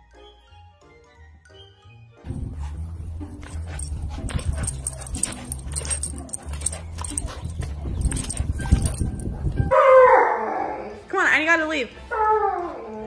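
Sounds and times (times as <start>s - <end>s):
dog vocalising: 3.4s - 9.5s.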